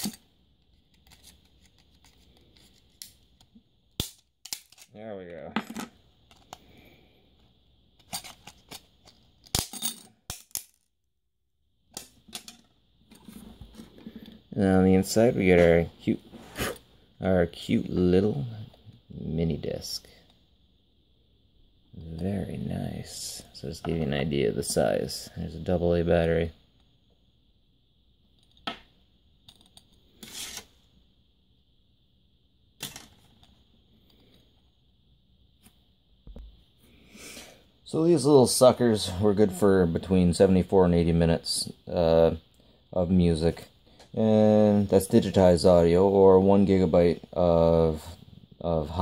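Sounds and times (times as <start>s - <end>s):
faint steady hiss: 0.0s - 10.6s, 11.6s - 49.0s.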